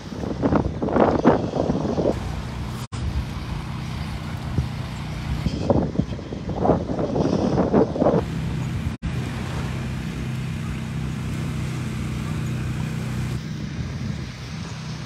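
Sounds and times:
engine running with low hum: 0.0 - 15.0
voices: 8.2 - 13.4.

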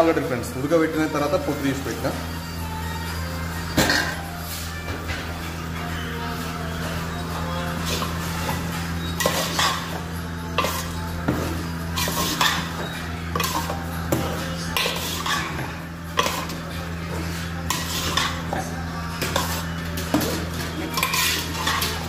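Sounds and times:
metal spoon scraping a pot: 7.8 - 22.0.

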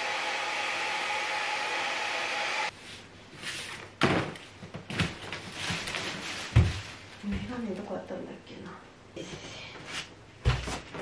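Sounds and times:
hair dryer running: 0.0 - 2.7
thumps and rustles: 4.0 - 7.6, 10.4 - 11.0
footsteps on cardboard boxes: 4.7 - 7.6, 10.5 - 11.0.

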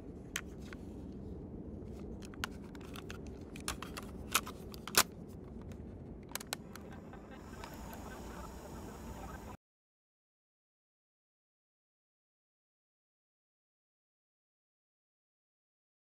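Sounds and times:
low steady background hum: 0.0 - 9.6.

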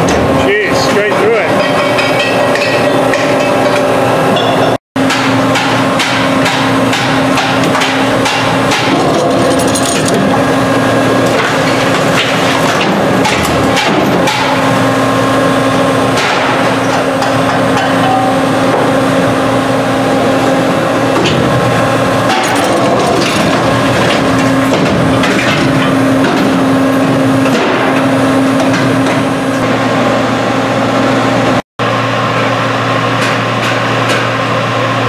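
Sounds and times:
machine hum: 0.0 - 35.0
sharp metallic clanks and cracks: 1.5 - 10.3, 16.2 - 18.4, 22.3 - 26.6.

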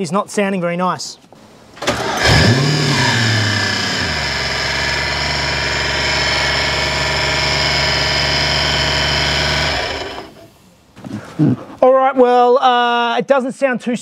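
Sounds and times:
car engine idling: 1.9 - 10.5.

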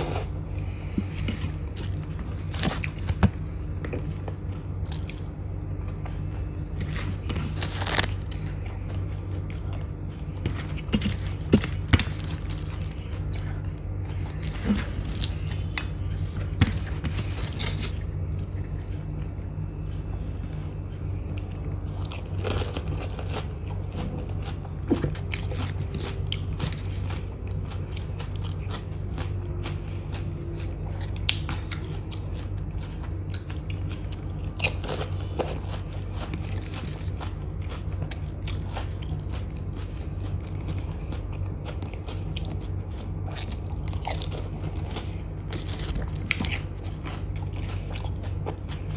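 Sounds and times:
steady low hum: 0.0 - 48.9
crisp shells crunching: 6.7 - 8.6, 10.5 - 15.9, 42.6 - 48.4
wet chewing: 21.3 - 48.9.

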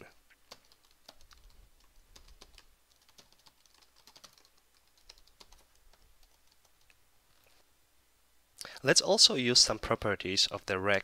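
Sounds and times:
faint keyboard typing: 0.0 - 7.6.

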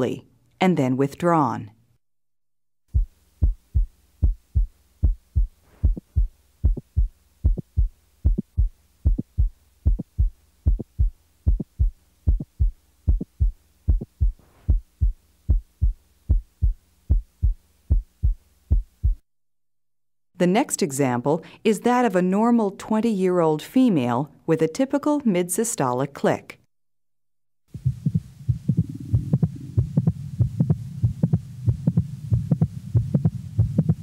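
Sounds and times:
faint hum: 2.9 - 19.2, 27.7 - 34.0
heart click: 2.9 - 19.2, 27.8 - 34.0
heartbeat through a stethoscope: 2.9 - 19.2, 27.7 - 34.0.

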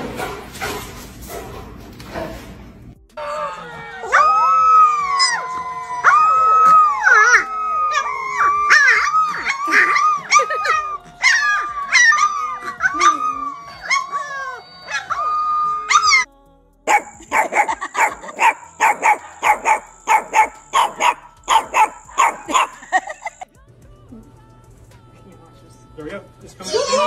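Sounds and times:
puppies howling: 3.2 - 16.3, 16.9 - 23.4
puppy barking in high yips: 16.9 - 23.0.

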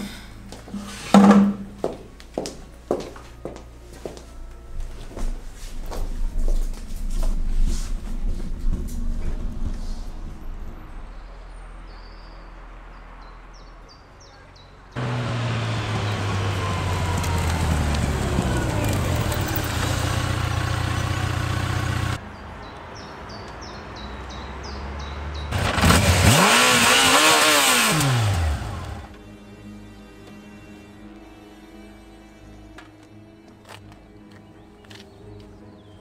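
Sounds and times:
birds chirping: 11.1 - 25.6, 34.2 - 36.0
motorcycle engine revving: 15.0 - 22.2, 24.7 - 29.1
motorcycle engine running: 15.0 - 22.2, 25.5 - 29.1.

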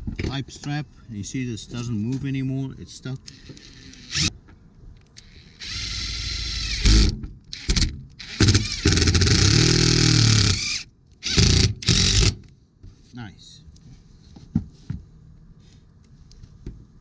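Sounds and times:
impact driver driving screws: 5.2 - 12.4.

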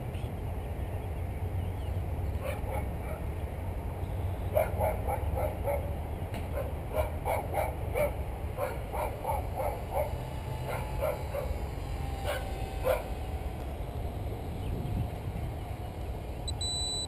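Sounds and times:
dog barking: 2.4 - 3.2, 4.5 - 5.9, 6.5 - 11.6, 12.2 - 13.2
electric motor whine: 9.4 - 17.0
wind rumble on microphone: 13.3 - 16.5.

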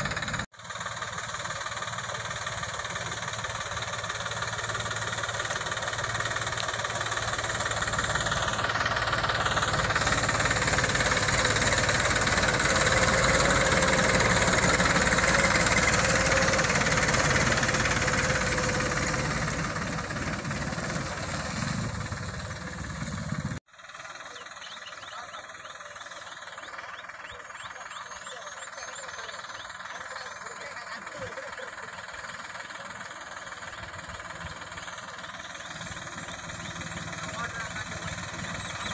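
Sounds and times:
tractor diesel engine driving past: 0.0 - 38.9.

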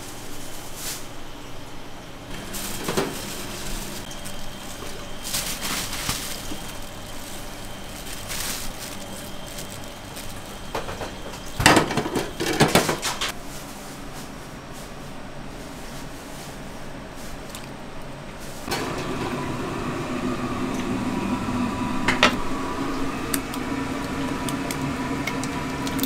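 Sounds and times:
kitchen utensils and pans clattering: 2.3 - 6.7, 10.7 - 13.4.

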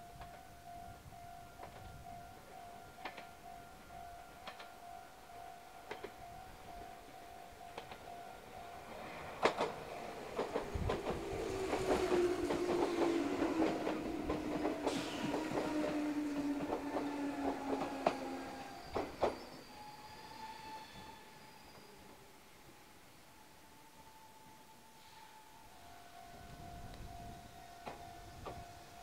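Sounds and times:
train brake whine: 0.0 - 29.0
train wheels clacking over rail joints: 9.2 - 19.5.

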